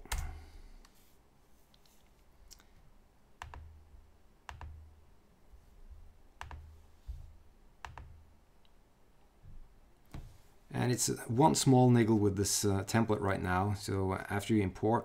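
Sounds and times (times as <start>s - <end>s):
computer mouse clicks: 3.4s - 3.7s, 4.5s - 4.8s, 6.4s - 6.7s, 7.8s - 8.2s.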